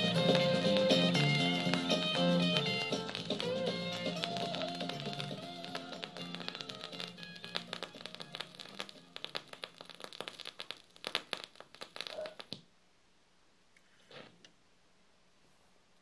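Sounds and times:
vinyl crackles and pops: 0.0 - 12.7.

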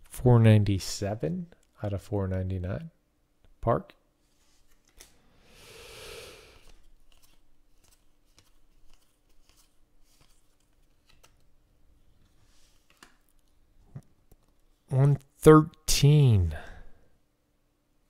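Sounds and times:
cards swishing against stack: 4.2 - 5.2, 6.6 - 11.5, 12.2 - 13.4.

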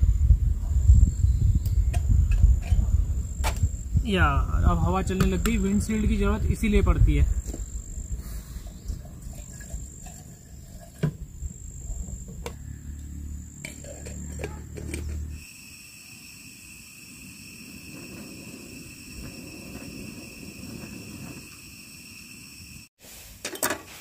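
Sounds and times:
wind rumbling on microphone: 0.0 - 15.4, 17.2 - 22.1
high insect drone: 0.0 - 22.9
light breeze: 0.0 - 24.0
camp cookware clicks and knocks: 13.6 - 15.2.

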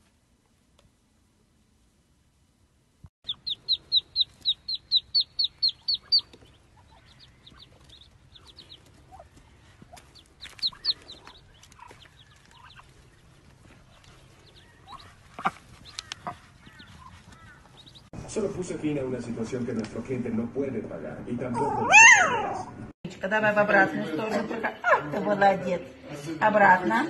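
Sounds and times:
ducklings peeping: 3.2 - 18.1.

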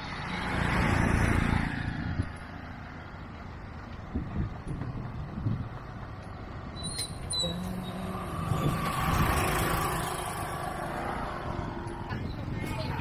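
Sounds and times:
traffic engine rumble: 0.0 - 13.0
vehicle passing with hiss: 7.5 - 12.0.

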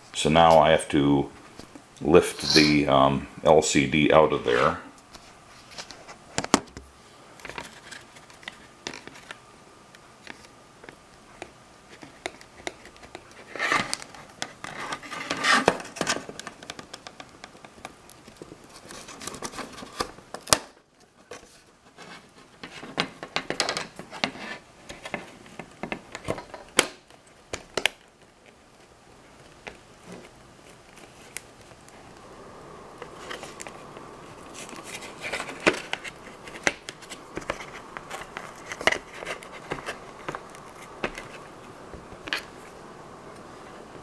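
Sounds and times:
scratchy scraping of plastic: 11.9 - 16.7, 18.5 - 20.2, 23.9 - 25.5, 33.0 - 41.5.

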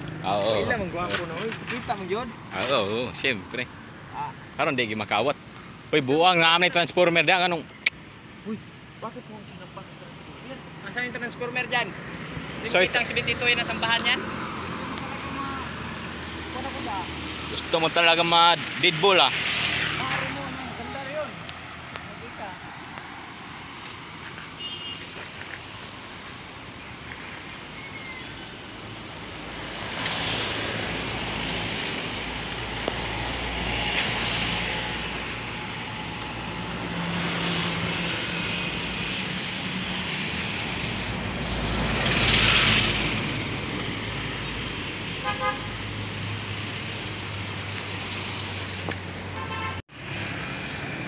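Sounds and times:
road traffic passing: 0.0 - 51.0
car horn double toot: 24.6 - 25.4, 49.4 - 49.8.

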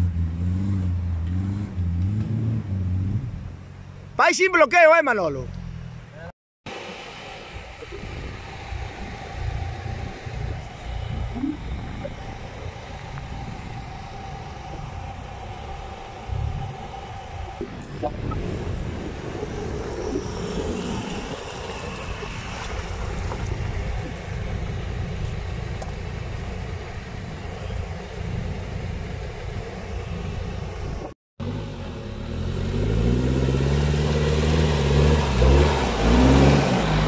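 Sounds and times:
off-road vehicle engine revving: 0.0 - 4.1, 5.4 - 37.0.

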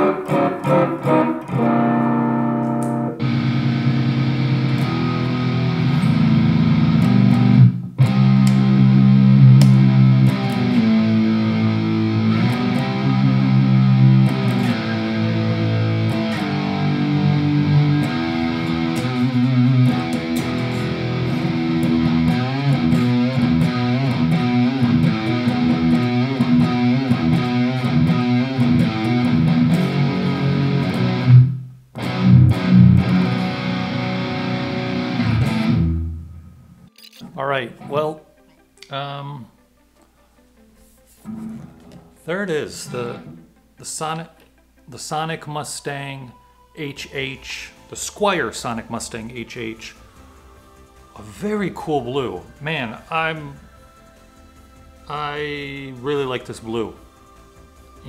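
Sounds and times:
electric guitar playing: 0.0 - 39.6, 41.2 - 43.6.

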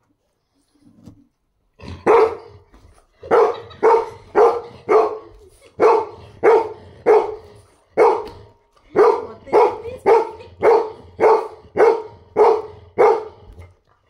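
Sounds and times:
dog barking excitedly: 2.0 - 2.6, 3.2 - 13.5.

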